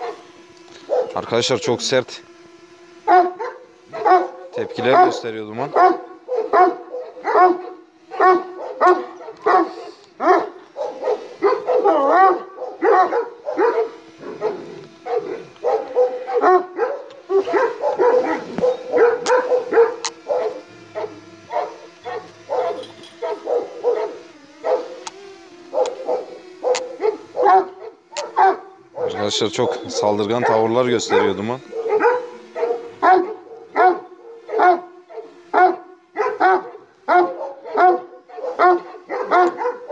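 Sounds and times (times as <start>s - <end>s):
drone propeller hum: 0.0s - 39.9s
dog barking aggressively: 0.9s - 1.2s, 3.1s - 25.0s, 25.7s - 39.9s.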